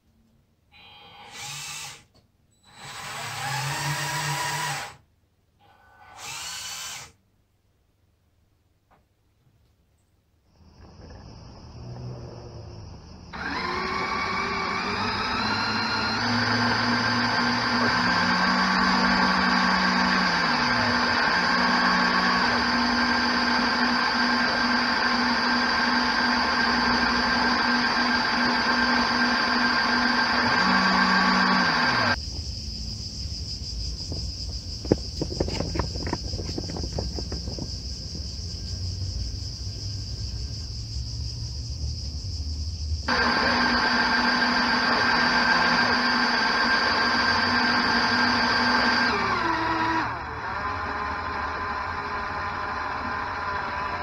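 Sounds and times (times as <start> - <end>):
electric motor whine: 0.8 - 2.0, 6.0 - 7.1, 10.8 - 32.2, 34.1 - 40.4, 43.0 - 54.0.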